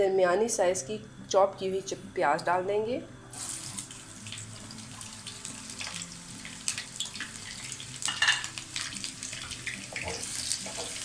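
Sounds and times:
onion sizzling in oil: 0:03.3 - 0:11.0.

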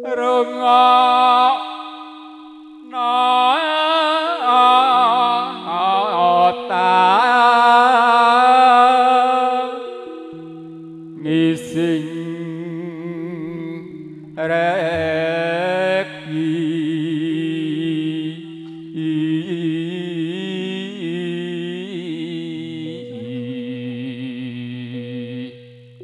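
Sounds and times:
keyboard chords: 0:00.0 - 0:17.6
wavering melody with vibrato: 0:00.0 - 0:26.0.

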